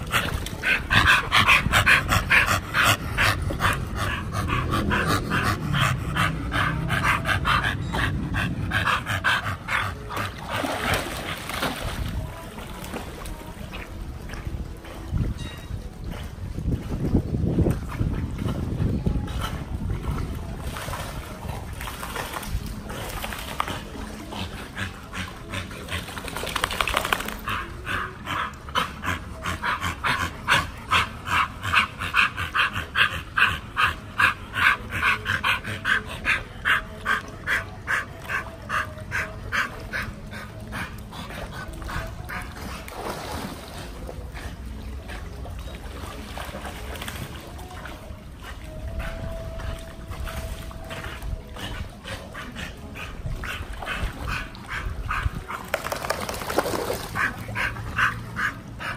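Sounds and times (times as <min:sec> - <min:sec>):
dog panting: 0:00.0 - 0:11.4, 0:27.1 - 0:42.9, 0:48.3 - 0:55.7, 0:57.2 - 0:58.9.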